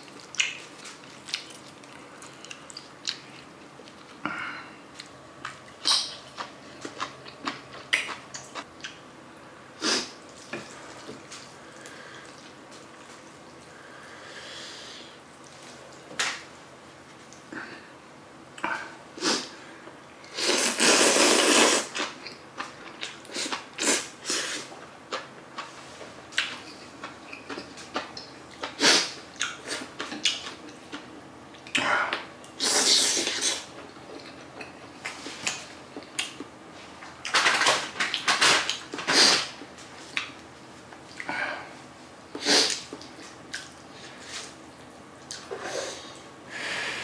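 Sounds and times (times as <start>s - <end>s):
noodle slurps: 20.4s - 22.0s.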